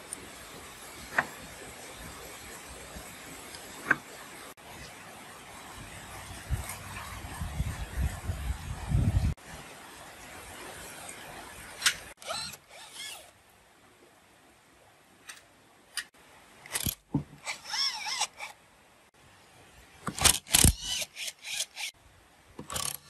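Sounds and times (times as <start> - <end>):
cordless driver loosening bolts: 16.7 - 18.5, 20.1 - 21.9, 22.6 - 23.0.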